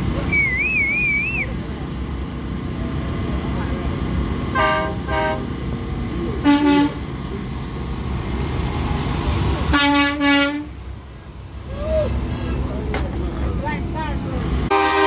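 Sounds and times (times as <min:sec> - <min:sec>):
diesel trucks rumbling: 0:00.0 - 0:15.0
truck horns honking: 0:04.5 - 0:05.6, 0:06.4 - 0:07.2, 0:09.6 - 0:11.0, 0:14.6 - 0:15.0.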